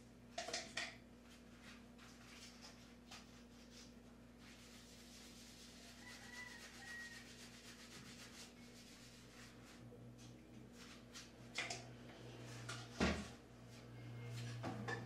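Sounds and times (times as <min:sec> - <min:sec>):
low steady hum: 0:07.4 - 0:15.0.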